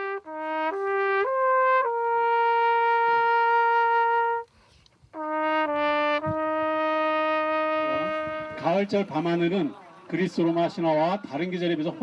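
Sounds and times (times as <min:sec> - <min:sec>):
solo trumpet melody: 0:00.0 - 0:09.1.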